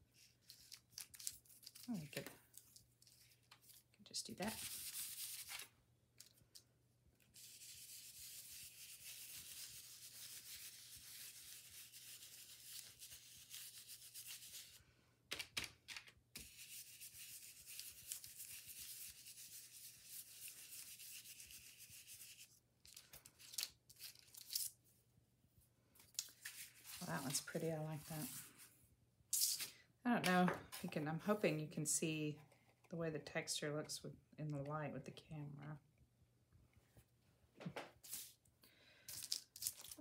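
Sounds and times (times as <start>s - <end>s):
sponge dauber rubbing paint: 7.4s - 14.8s.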